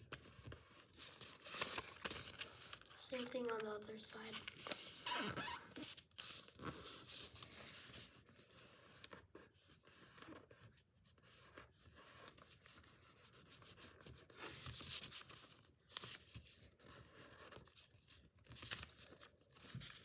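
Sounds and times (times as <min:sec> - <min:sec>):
paper being folded and rubbed: 0:04.2 - 0:20.0.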